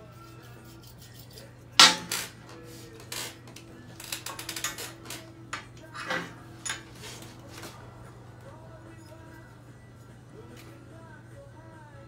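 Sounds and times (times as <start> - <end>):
metal tools clanking on workbench: 1.8 - 2.4, 4.2 - 7.3.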